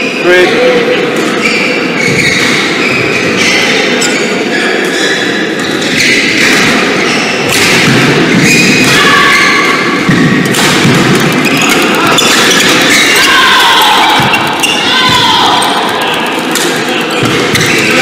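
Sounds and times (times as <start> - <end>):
sneakers squeaking on floor: 1.1 - 13.4, 14.0 - 15.3, 16.9 - 18.0
thuds of footwork and hits: 10.0 - 11.5.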